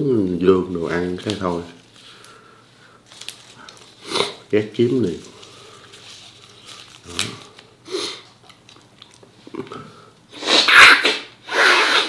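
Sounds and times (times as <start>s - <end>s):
mouth sounds: 9.4s - 12.0s
man sneezing loudly: 10.4s - 12.0s.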